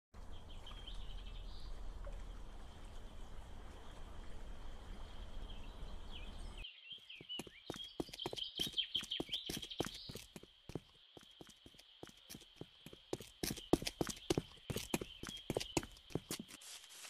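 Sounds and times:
running water with low rumble: 0:00.2 - 0:06.6
birds chirping: 0:05.0 - 0:16.6.

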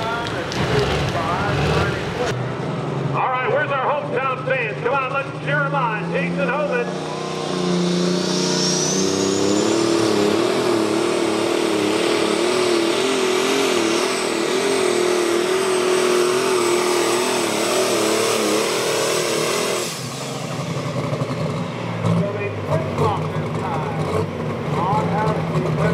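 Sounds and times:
tractor diesel engine revving: 0:00.0 - 0:25.9
high whistle: 0:06.9 - 0:11.0.

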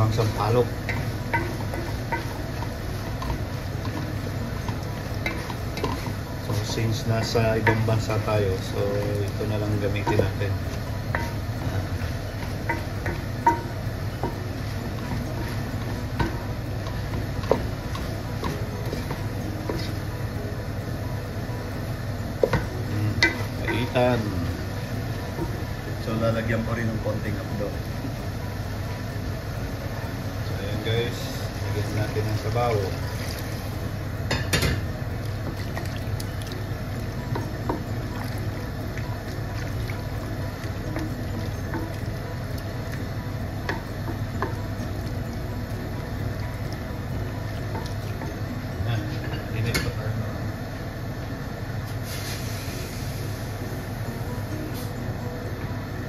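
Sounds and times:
wooden spoon stirring and scraping: 0:00.0 - 0:20.3
spoon knocking against pot: 0:12.6 - 0:14.4
broth pouring into a pot: 0:32.5 - 0:34.0.

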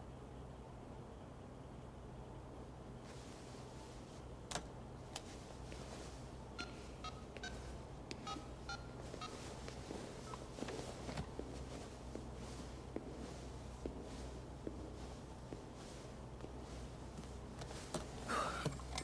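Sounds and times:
phone keypad beeping: 0:06.6 - 0:09.5.

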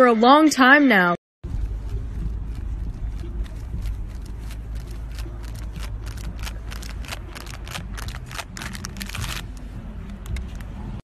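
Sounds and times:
sharp clicks and crackles: 0:01.8 - 0:10.8.

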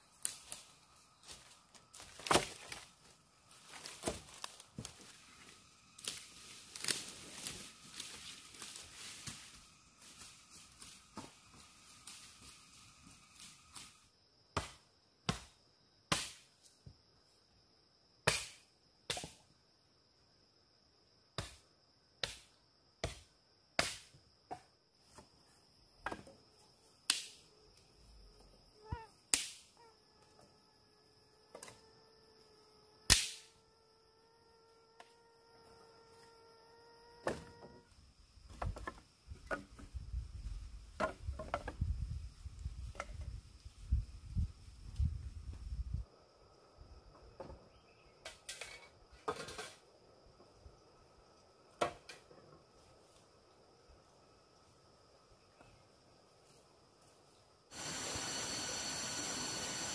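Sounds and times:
hand tool striking bamboo: 0:16.1 - 0:16.4, 0:22.2 - 0:24.6, 0:33.1 - 0:33.5.

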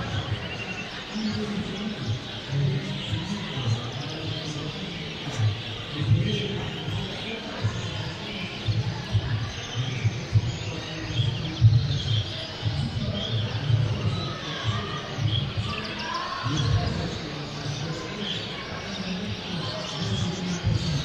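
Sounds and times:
canaries chirping and twittering: 0:00.0 - 0:21.0
faint murmur of voices: 0:00.0 - 0:21.0.

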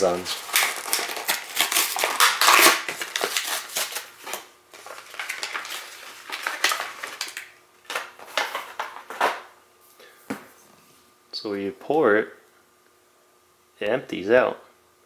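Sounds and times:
plastic packaging crinkling: 0:00.0 - 0:09.4.

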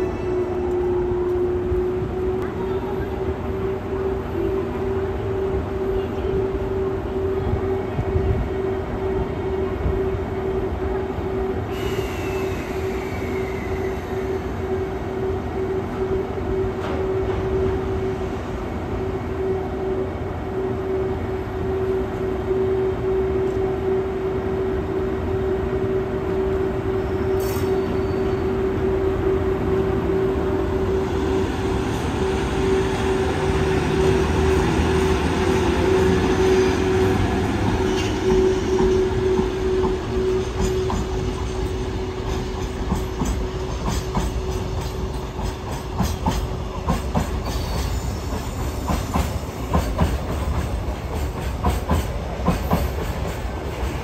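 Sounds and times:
electric locomotive humming: 0:00.0 - 0:54.0
train wheels clattering on rails: 0:33.4 - 0:54.0.

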